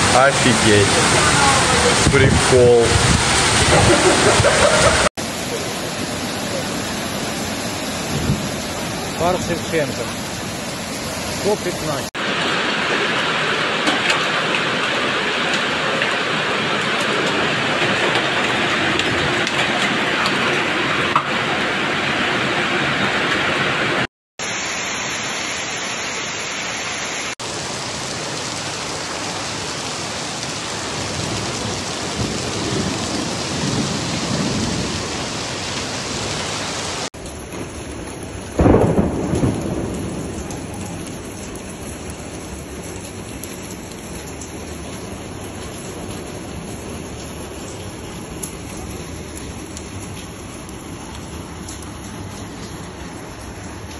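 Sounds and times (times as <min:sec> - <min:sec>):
thunder clap rumbling: 0:00.0 - 0:05.1, 0:08.0 - 0:10.2, 0:30.9 - 0:36.3, 0:37.1 - 0:53.9
heavy rain pouring: 0:00.0 - 0:53.9.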